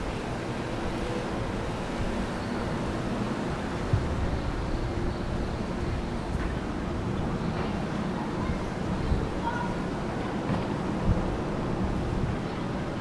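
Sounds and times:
surf rumble: 0.0 - 13.0
wind on the microphone: 0.0 - 13.0.

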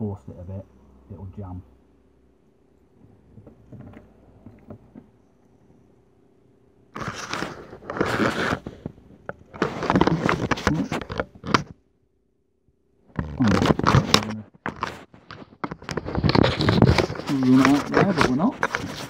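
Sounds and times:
fingers scraping camera body: 7.0 - 11.8, 13.2 - 19.0.

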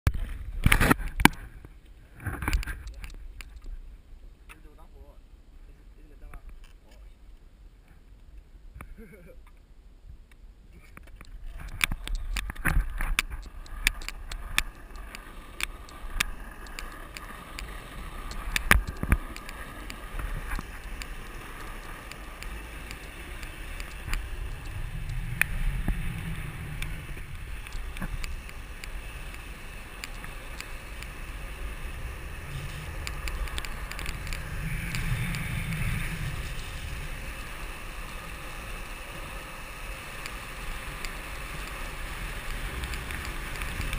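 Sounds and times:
skateboard wheels rolling on asphalt: 0.1 - 4.7, 10.2 - 43.9
sharp clicks and knocks: 11.0 - 21.2
wind on microphone: 11.3 - 38.4.

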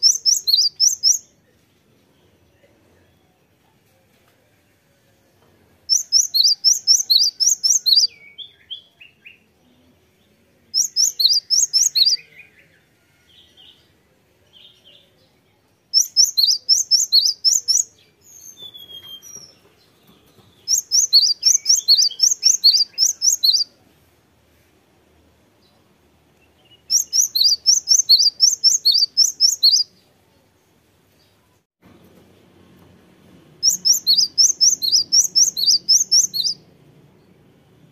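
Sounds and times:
bird singing rapid high notes: 0.0 - 1.3, 5.9 - 8.8, 10.8 - 12.3, 16.0 - 19.6, 20.6 - 23.7, 26.7 - 29.9, 33.6 - 36.7
soft bird calls: 5.9 - 9.9.

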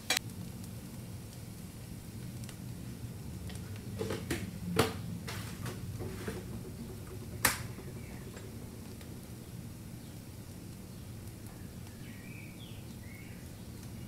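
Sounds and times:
low steady hum: 0.0 - 14.0
kitchen items clicking and tapping: 3.4 - 9.7
sharp knocks: 3.9 - 9.6.

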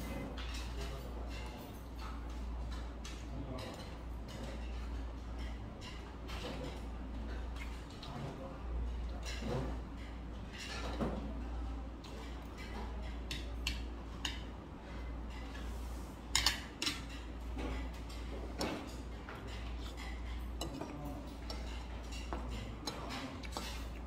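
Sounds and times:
chewing: 19.4 - 24.0.

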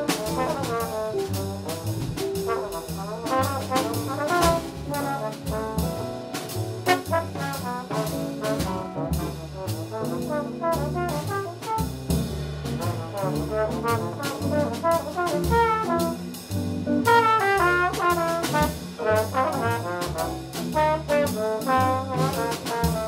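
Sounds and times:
drums: 0.0 - 23.0
piano: 0.0 - 23.0
trombone solo: 0.0 - 23.0
upright bass: 0.0 - 23.0.

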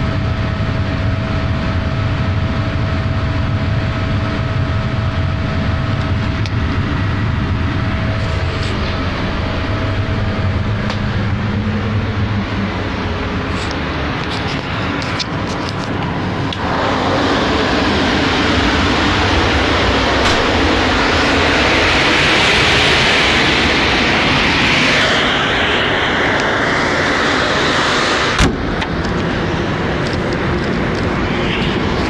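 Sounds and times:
compressed air rushing: 6.9 - 32.0.

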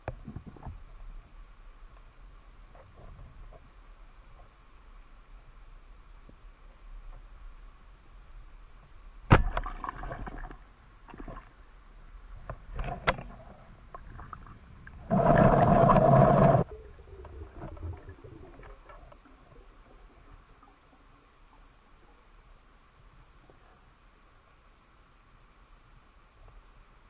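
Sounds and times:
sharp underwater knock: 9.3 - 10.0
muffled underwater rushing: 12.3 - 22.2.

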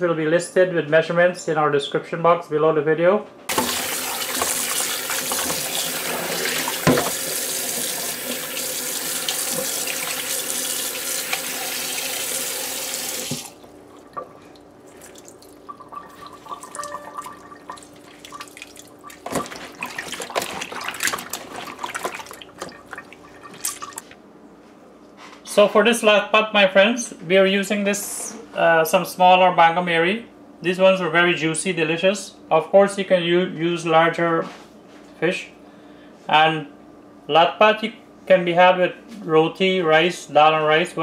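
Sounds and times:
tap water running into bowl: 3.5 - 24.2
small water splashes: 13.3 - 24.2.

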